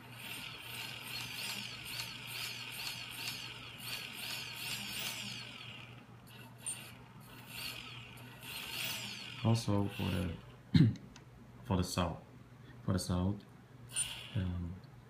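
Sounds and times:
quadcopter motors whining: 0.0 - 10.5, 13.9 - 14.7.

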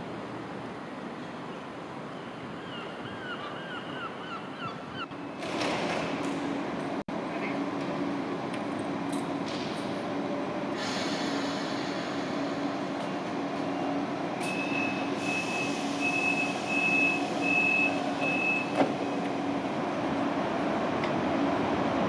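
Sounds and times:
train humming: 5.1 - 22.0
air hiss: 10.8 - 12.7.

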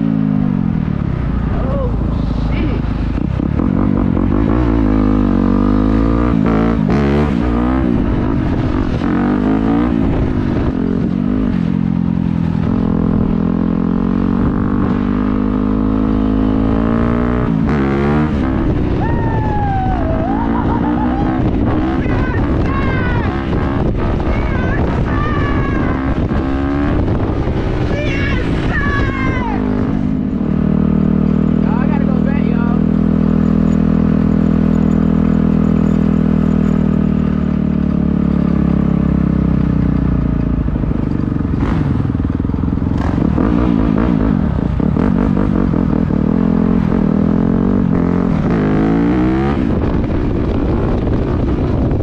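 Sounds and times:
dirt bike engine accelerating: 0.0 - 52.0
wind rumble on microphone: 0.0 - 52.0
high whines rising and falling: 17.7 - 24.1.

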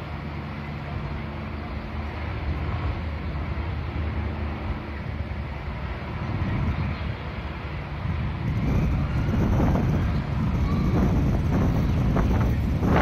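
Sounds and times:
low rumble of street ambience: 0.0 - 13.0
wind buffeting the microphone: 2.4 - 13.0.

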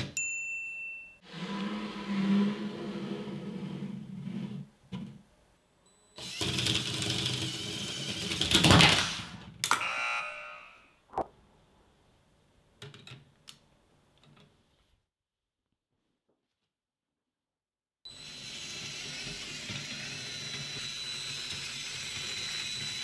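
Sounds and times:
toy train motor running: 18.2 - 23.0.

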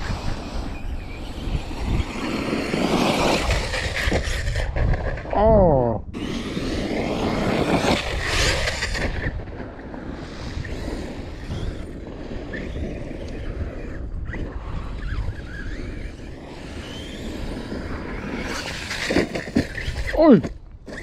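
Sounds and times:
tyres on dirt: 0.0 - 5.3, 6.2 - 21.0
electric motor whining: 10.5 - 21.0.

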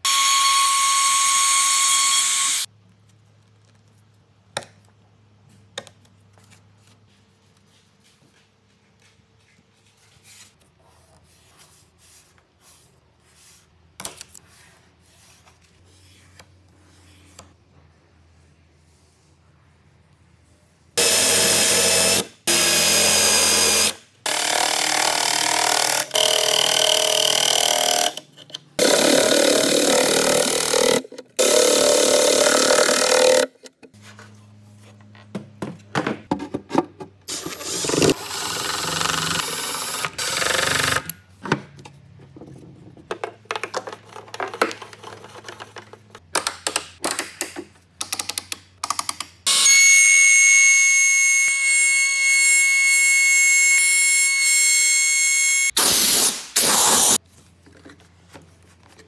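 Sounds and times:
power tool running: 0.1 - 2.7, 21.0 - 28.2, 28.8 - 33.5, 37.3 - 41.1.

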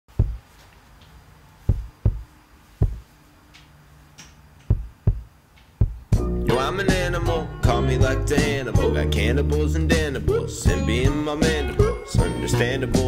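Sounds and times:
deep thumps: 0.1 - 0.5, 1.7 - 3.1, 4.7 - 6.2.

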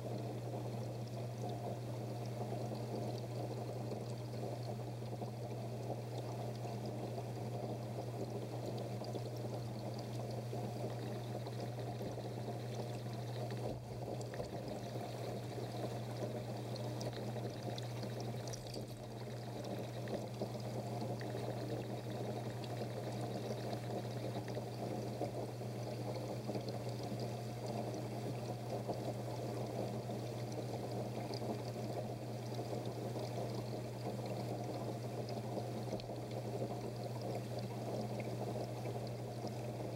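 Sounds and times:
constant low hum: 0.0 - 39.9.

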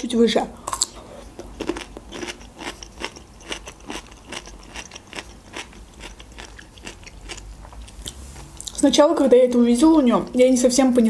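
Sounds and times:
person chewing: 0.6 - 8.8.

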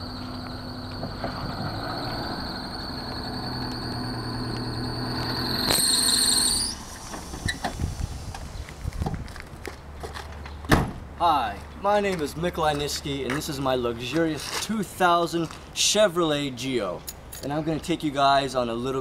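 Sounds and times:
high-pitched squeal: 0.0 - 8.7
car engine humming: 0.0 - 9.0.

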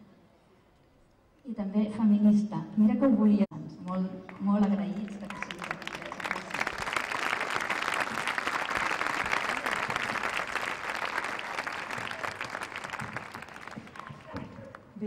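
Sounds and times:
audience applauding: 4.3 - 14.8.

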